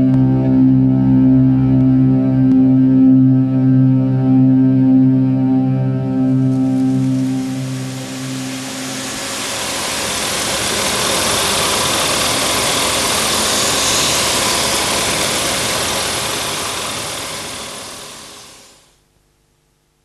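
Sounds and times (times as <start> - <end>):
loud steady rushing noise: 6.3 - 18.9.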